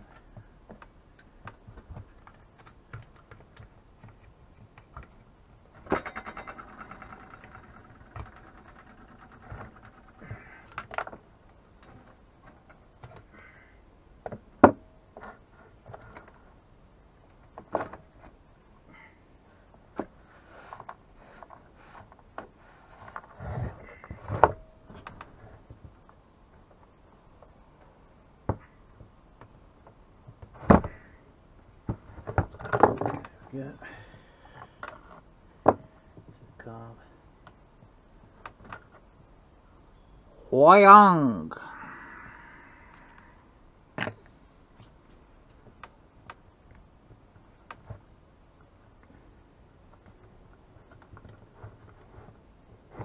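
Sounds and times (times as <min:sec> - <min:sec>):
chainsaw parts rattling and knocking: 0:05.7 - 0:11.2.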